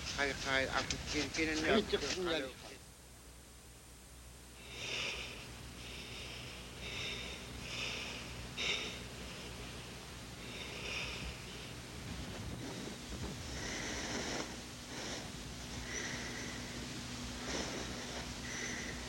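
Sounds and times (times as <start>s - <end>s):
faint low hum: 0.0s - 19.0s
people snoring through the nose: 4.6s - 19.0s.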